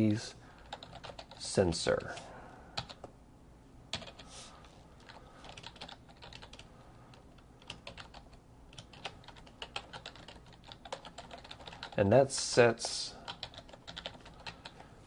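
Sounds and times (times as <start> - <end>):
typing on computer keyboard: 0.6 - 1.4, 2.8 - 3.1, 3.9 - 4.2, 5.0 - 6.7, 7.6 - 12.0, 13.2 - 14.9.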